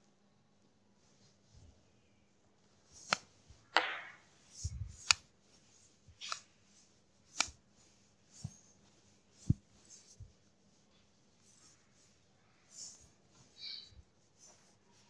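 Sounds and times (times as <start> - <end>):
duster rubbing on whiteboard: 4.3 - 15.0.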